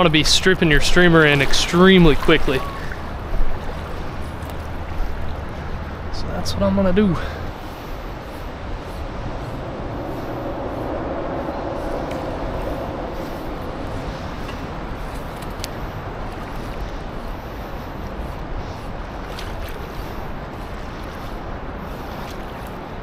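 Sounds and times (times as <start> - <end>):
stream flowing: 0.0 - 23.0.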